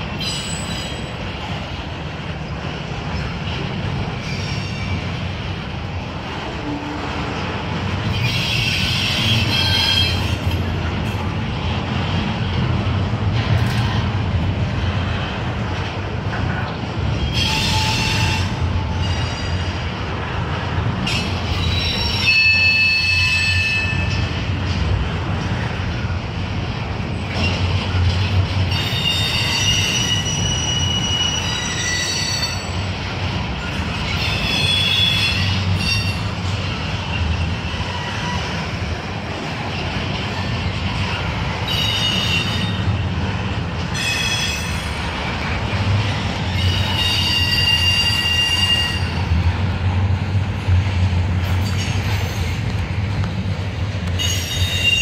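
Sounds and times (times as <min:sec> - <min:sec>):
freight train rumbling past: 0:00.0 - 0:55.0
high-pitched wheel squeal: 0:21.1 - 0:24.2, 0:28.7 - 0:32.9, 0:34.1 - 0:36.3, 0:46.5 - 0:49.2.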